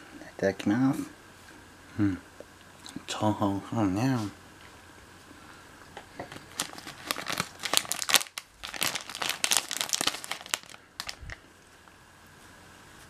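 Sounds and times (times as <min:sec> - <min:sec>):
plastic bread wrapper crinkling: 0:06.2 - 0:11.4.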